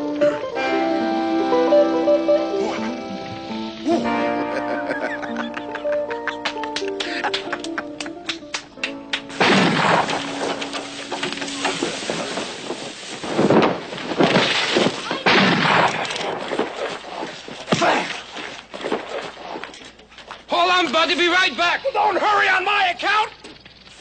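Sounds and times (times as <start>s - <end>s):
loud crashes and booms: 9.4s - 10.6s, 11.7s - 16.0s.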